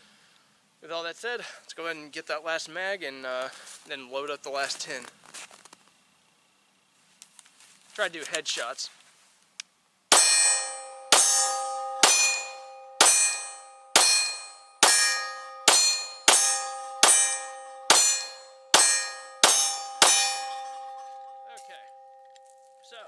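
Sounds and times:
steel target ringing: 10.1 - 23.0.

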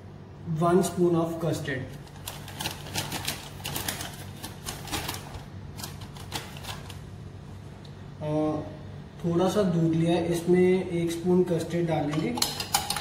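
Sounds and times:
low steady hum: 0.0 - 13.0
spoon and containers clinking: 12.0 - 13.0.

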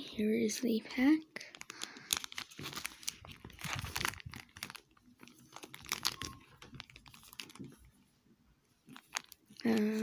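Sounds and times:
fingers handling card pack: 1.5 - 7.9, 8.9 - 10.0.

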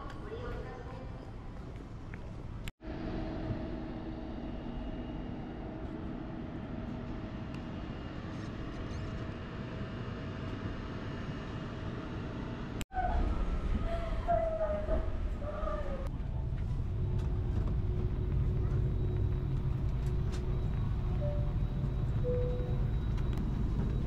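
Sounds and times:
faint whine: 16.1 - 24.0.

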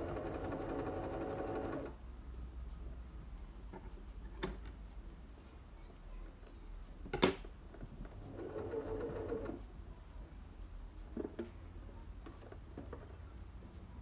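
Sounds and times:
sewing machine stitching: 0.0 - 2.0, 8.3 - 9.6.

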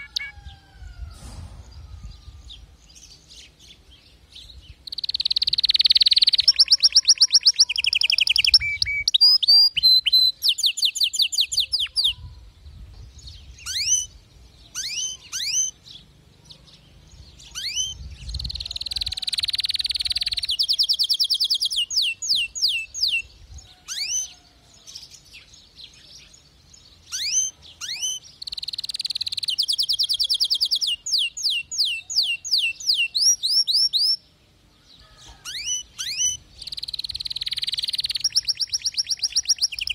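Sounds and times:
canary trilling: 0.0 - 0.4, 4.8 - 12.2, 13.6 - 23.2, 27.0 - 34.2, 35.4 - 39.9.

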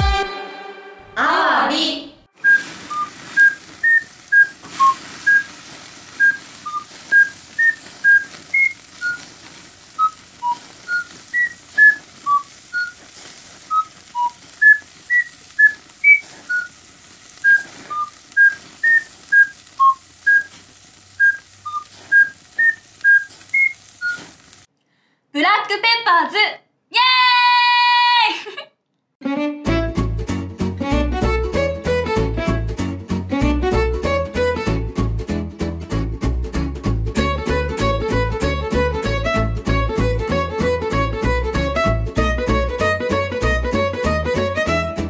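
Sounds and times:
person whistling a tune: 2.4 - 5.5, 6.2 - 9.2, 10.0 - 13.0, 13.7 - 16.7, 17.4 - 20.5, 21.2 - 24.2.

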